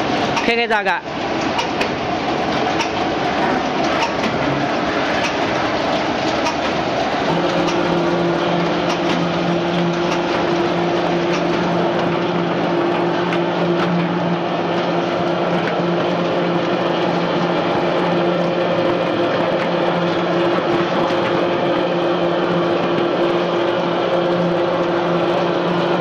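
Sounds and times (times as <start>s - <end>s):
gear motors humming: 0.0s - 26.0s
machinery rushing noise: 1.6s - 26.0s
mesh conveyor belt clicks: 5.1s - 5.6s, 8.8s - 10.5s.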